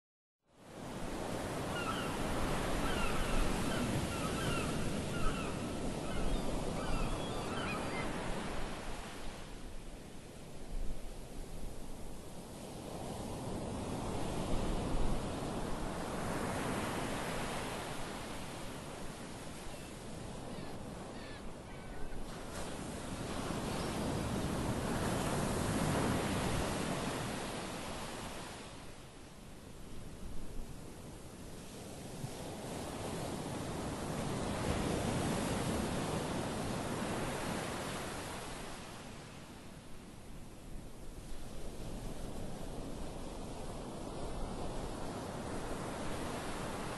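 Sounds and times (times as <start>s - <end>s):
wind: 0.4s - 46.9s
gulls calling: 1.7s - 8.4s.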